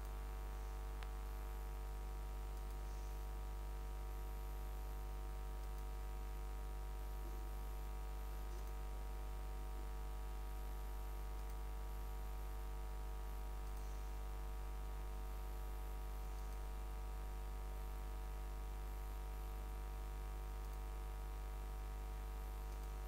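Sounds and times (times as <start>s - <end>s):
low electrical hum and hiss: 0.0s - 23.0s
faint clicks: 2.6s - 2.8s, 5.6s - 5.9s, 8.5s - 8.8s, 11.4s - 11.6s, 16.3s - 16.7s, 20.6s - 20.8s, 22.6s - 23.0s.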